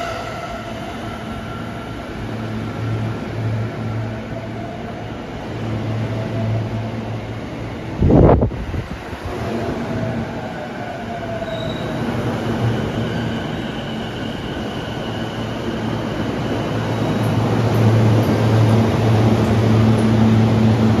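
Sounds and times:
low hum of train equipment: 0.0s - 21.0s.

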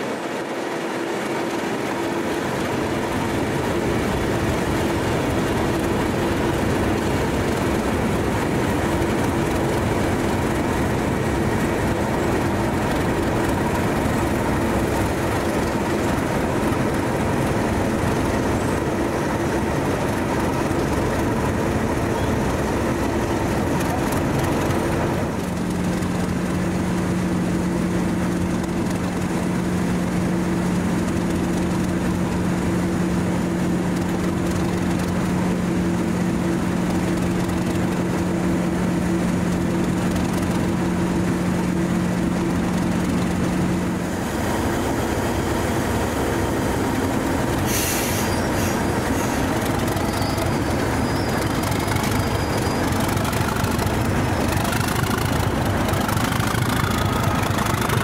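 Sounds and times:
diesel locomotive idling: 0.0s - 58.0s
air hiss: 47.6s - 49.5s.

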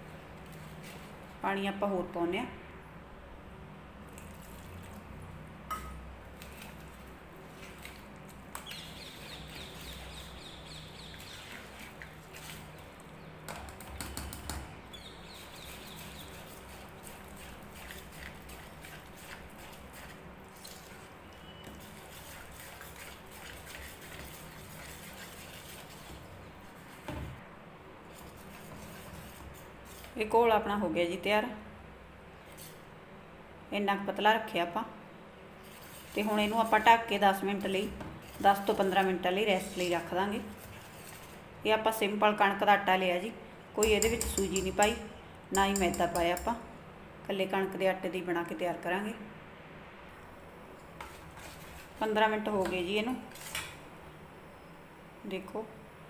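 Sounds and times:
whisk stirring batter: 6.4s - 14.5s, 15.1s - 27.1s, 28.1s - 30.3s, 35.6s - 41.5s, 43.8s - 46.6s, 50.9s - 53.7s
whisk scraping a metal bowl: 15.3s - 27.1s, 28.1s - 30.2s, 35.6s - 37.1s, 38.2s - 41.4s, 51.0s - 52.2s.

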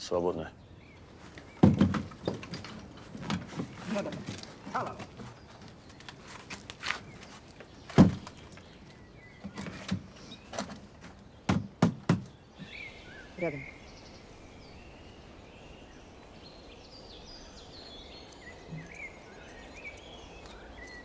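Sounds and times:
wooden planks knocking and scraping: 1.2s - 12.4s
sharp wooden knock: 1.6s - 2.2s, 11.5s - 12.4s.

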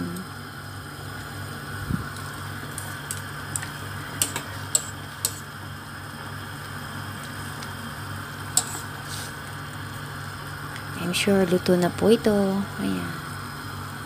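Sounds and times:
low hum and hiss from pot: 0.0s - 14.0s
chopsticks clicking against metal pot: 3.1s - 5.4s.

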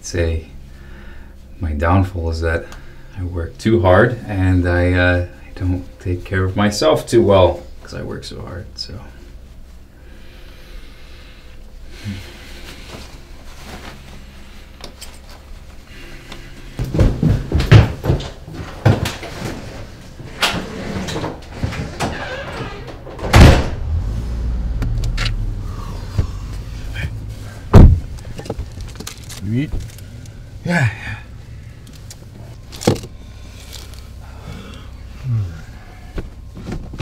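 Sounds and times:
footsteps on wooden stairs: 16.7s - 19.3s
car engine rumbling: 19.8s - 37.0s
door slamming: 21.8s - 24.2s, 26.1s - 28.2s
car door shutting: 22.3s - 28.8s.

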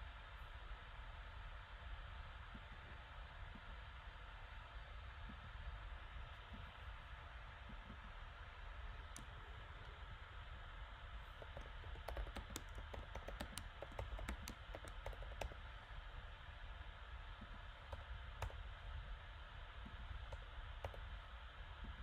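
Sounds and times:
faint steady hum and hiss: 0.0s - 22.0s
typing on a computer keyboard: 11.3s - 15.7s, 17.8s - 18.6s, 20.2s - 21.1s.

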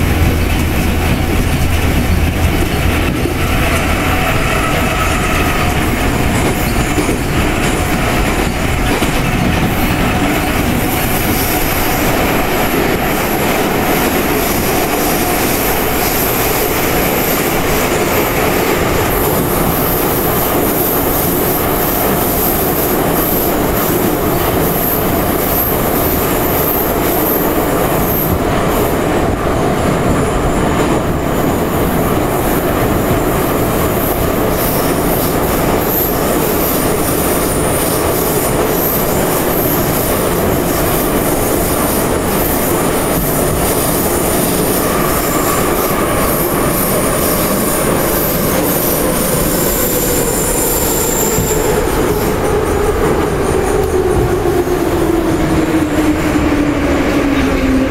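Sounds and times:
train wheels on rails: 0.0s - 57.9s
high squeal of wheels: 4.0s - 5.8s, 44.2s - 54.0s.

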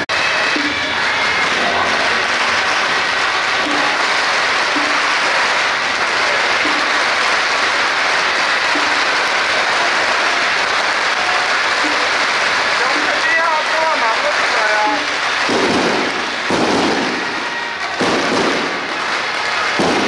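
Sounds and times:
firecrackers crackling: 0.0s - 20.0s.

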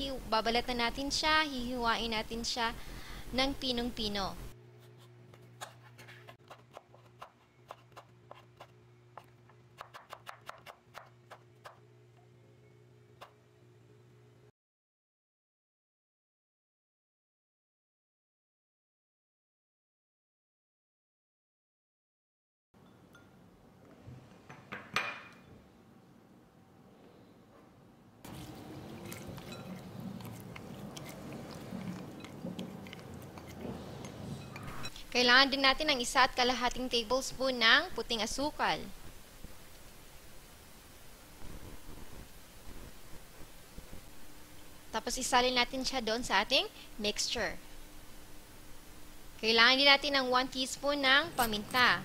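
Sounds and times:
knife chopping on wooden board: 5.6s - 11.8s.

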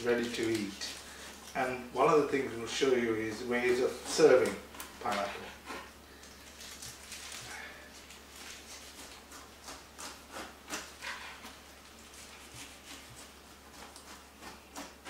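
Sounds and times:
knife scraping through pineapple rind: 2.6s - 6.0s, 8.4s - 15.0s.

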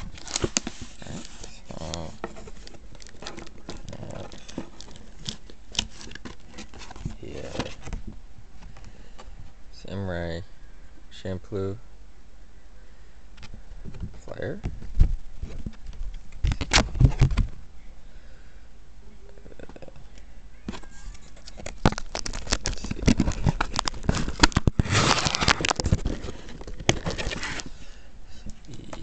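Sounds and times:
paper and cardboard rustling: 0.0s - 9.3s, 20.7s - 27.8s.

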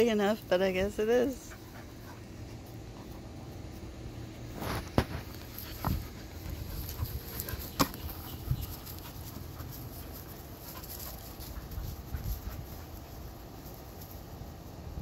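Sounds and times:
dogs panting and mouthing ball: 1.3s - 4.2s, 5.1s - 13.5s.

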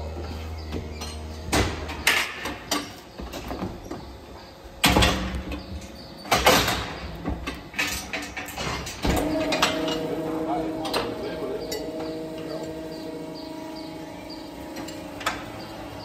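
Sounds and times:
steel gates clanking and rattling: 4.8s - 16.0s
low hum: 8.9s - 16.0s.

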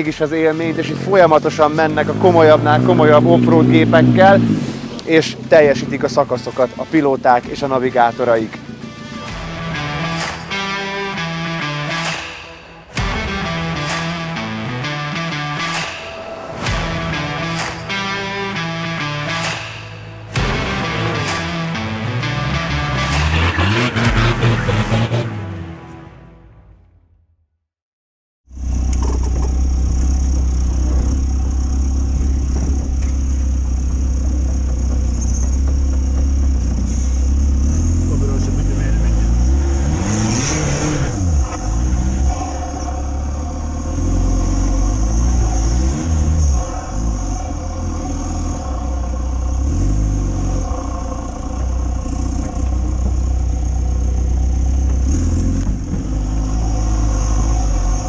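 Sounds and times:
vehicle engine running at low revs: 0.1s - 10.3s, 28.5s - 58.0s.

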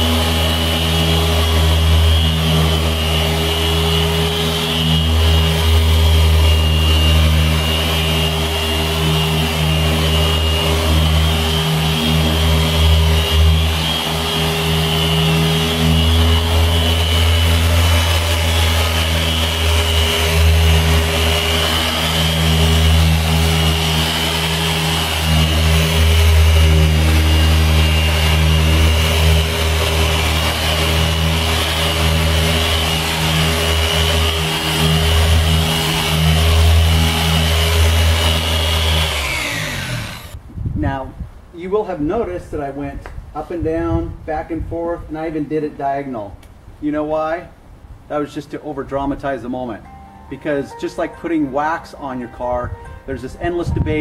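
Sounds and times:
machine polisher humming: 0.0s - 40.4s.

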